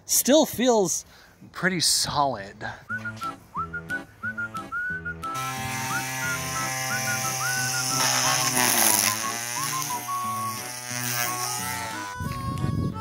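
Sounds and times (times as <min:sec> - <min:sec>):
whistle-like melody over held chords: 0:02.9 - 0:10.7, 0:11.3 - 0:13.0
high hiss: 0:05.9 - 0:11.4.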